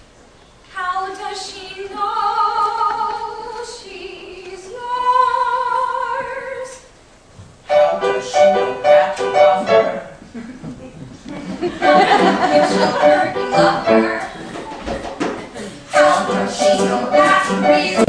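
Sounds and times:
person singing with vibrato: 7.7 - 10.1, 11.8 - 14.9, 15.6 - 18.0.

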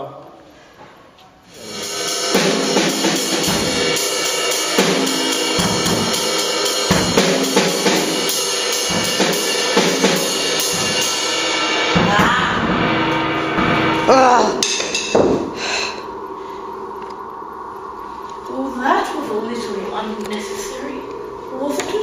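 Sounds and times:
drum kit playing: 1.5 - 16.1
cymbals ringing: 1.5 - 22.0.

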